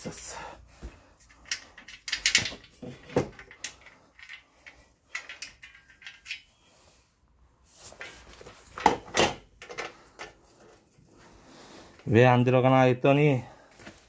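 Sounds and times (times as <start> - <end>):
knocks and clicks of assembly: 1.4 - 4.4.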